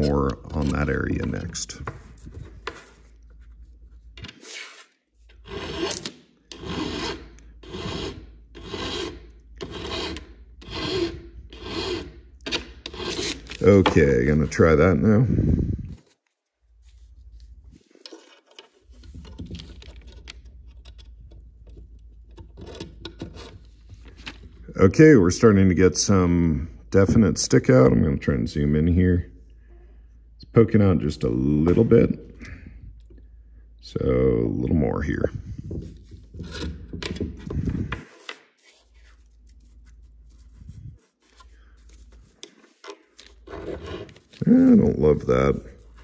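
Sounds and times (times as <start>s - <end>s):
hand file scraping metal: 4.4s - 14.5s, 35.9s - 38.5s, 42.4s - 46.0s
faint clicks and scrapes: 15.9s - 24.6s.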